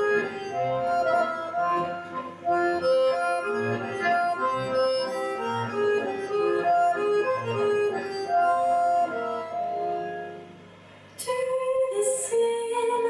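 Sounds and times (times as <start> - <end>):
accordion music: 0.0 - 10.7.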